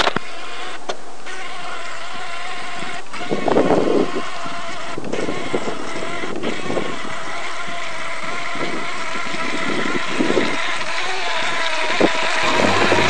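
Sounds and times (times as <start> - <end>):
boat motor whining: 12.0 - 13.0.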